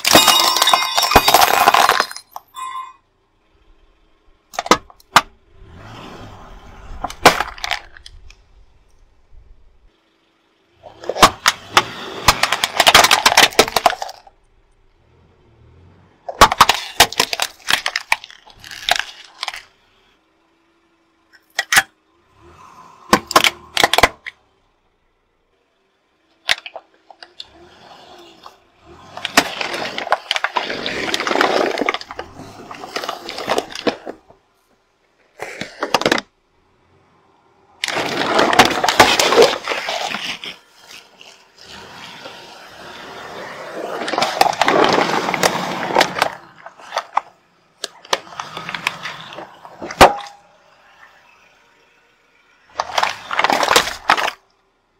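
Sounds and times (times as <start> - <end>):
plastic bottles bursting: 0.0 - 2.4, 37.8 - 41.8
tyre crushing plastic toys: 0.0 - 2.6, 4.5 - 5.4, 6.9 - 8.4, 10.8 - 14.4, 16.3 - 19.7, 23.1 - 24.4, 26.4 - 27.4, 28.0 - 34.4, 35.2 - 36.4, 37.8 - 50.4, 52.7 - 54.6.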